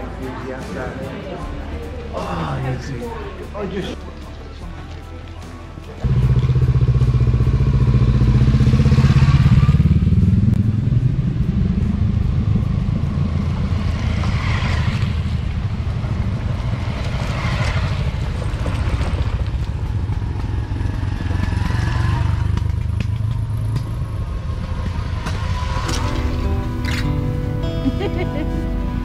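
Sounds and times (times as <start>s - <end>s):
motor scooters riding past: 6.0s - 27.2s.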